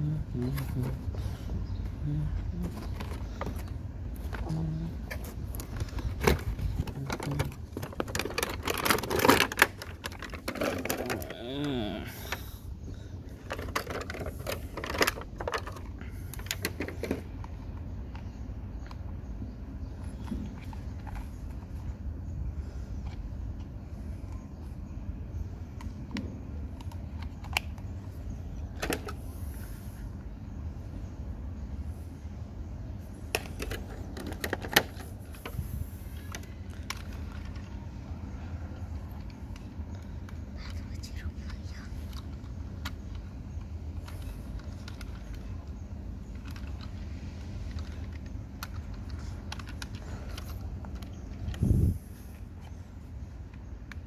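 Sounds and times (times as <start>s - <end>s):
low steady hum: 0.0s - 54.0s
plastic packaging clicks and crackles: 5.2s - 11.7s.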